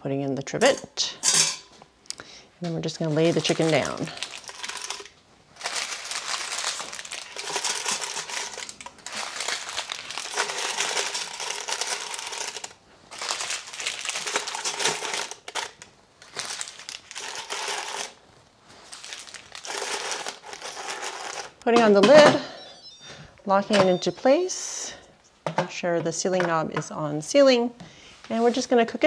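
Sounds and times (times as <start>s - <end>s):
parchment paper crinkling: 2.6s - 21.6s.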